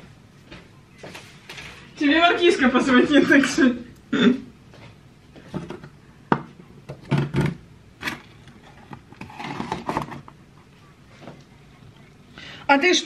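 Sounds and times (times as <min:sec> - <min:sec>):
objects clattering and scraping: 0:05.4 - 0:10.4.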